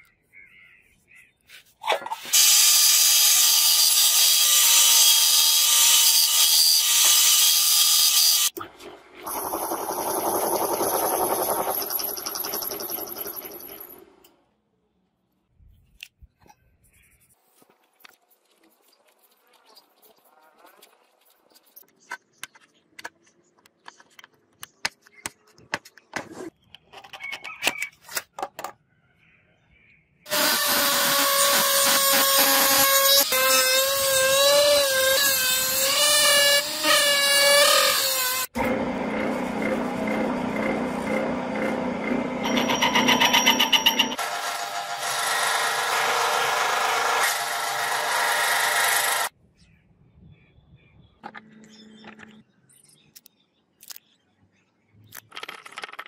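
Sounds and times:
rotary tool cutting metal whine: 2.3s - 8.6s, 9.2s - 14.0s, 30.3s - 45.2s.

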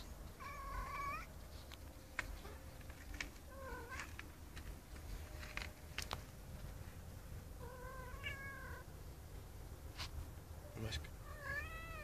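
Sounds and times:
cat meowing: 0.4s - 1.3s, 3.5s - 4.1s, 7.6s - 8.9s, 11.2s - 12.0s.

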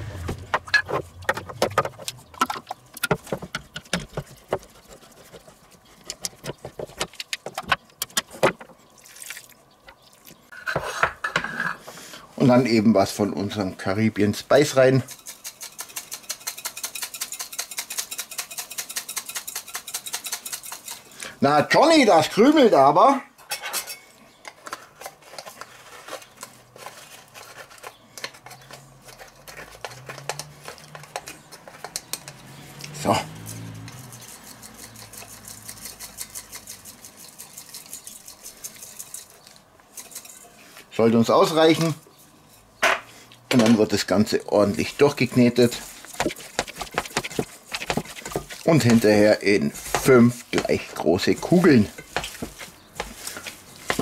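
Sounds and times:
spoon scraping metal tin: 14.6s - 21.7s, 24.7s - 40.8s, 44.6s - 54.0s.

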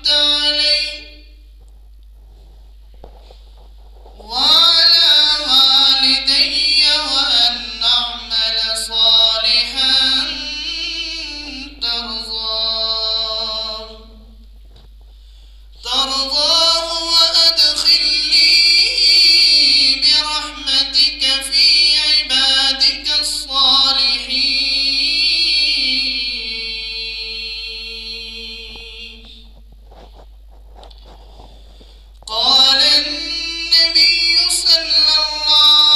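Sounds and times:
man chanting melodic recitation: 0.0s - 1.4s, 4.2s - 14.3s, 15.8s - 29.4s, 32.3s - 35.9s.

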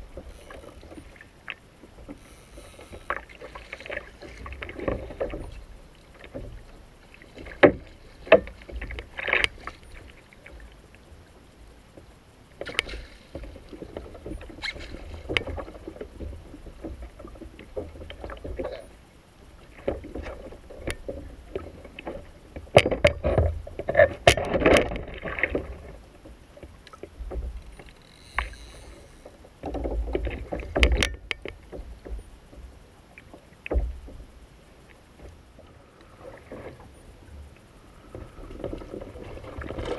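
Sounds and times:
water lapping against kayak hull: 0.0s - 39.9s
fishing tackle clicks and knocks: 22.7s - 25.8s, 26.8s - 32.2s.

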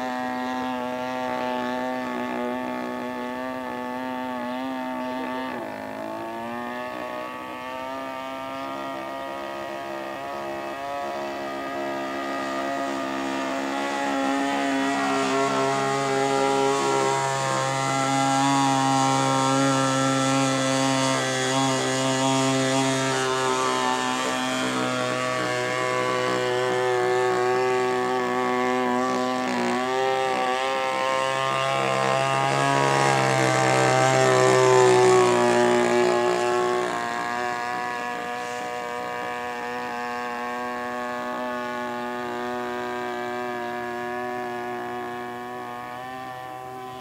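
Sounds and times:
model plane engine buzzing: 0.0s - 47.0s.

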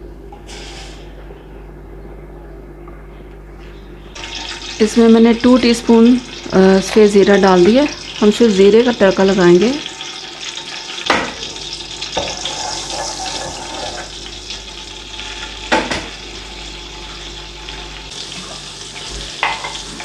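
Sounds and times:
seeds sizzling in hot oil: 4.2s - 20.0s.

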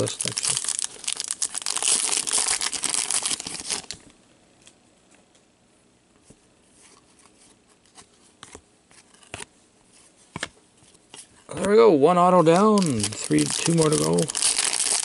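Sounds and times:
wrapper tearing and crinkling: 0.0s - 4.0s, 12.4s - 15.0s.

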